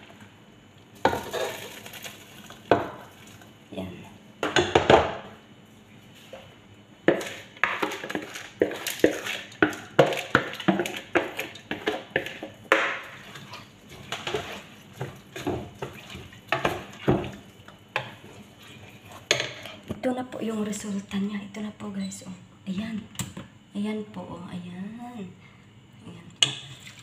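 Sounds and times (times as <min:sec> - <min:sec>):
spoon scraping plastic bowl: 0:07.1 - 0:17.4.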